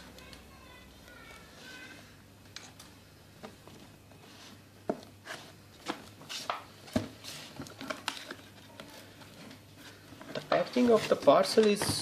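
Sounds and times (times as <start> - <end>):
cardboard box rustling and scraping: 9.2 - 11.5.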